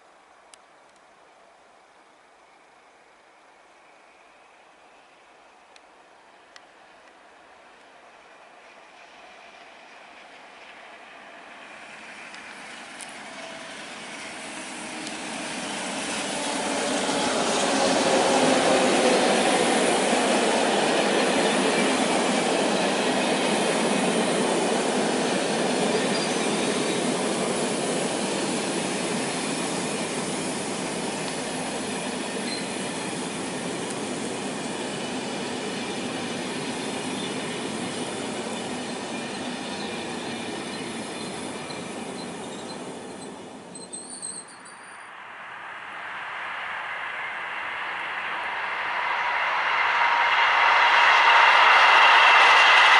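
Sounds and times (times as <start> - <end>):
electric locomotive passing: 2.4 - 52.9
wheels rattling on rails: 9.5 - 45.1
high wheel squeal: 25.8 - 33.3, 34.6 - 45.1.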